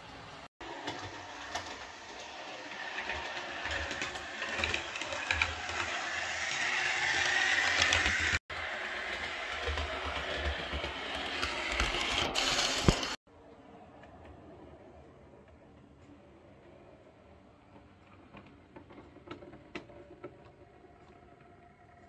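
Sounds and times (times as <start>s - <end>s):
model train wheels clicking: 0.7s - 13.2s
small electric motor whirring: 1.1s - 13.2s.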